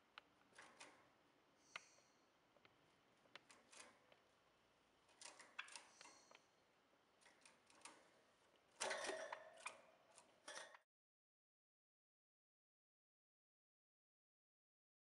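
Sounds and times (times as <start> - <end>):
caged birds clicking: 5.2 - 6.4.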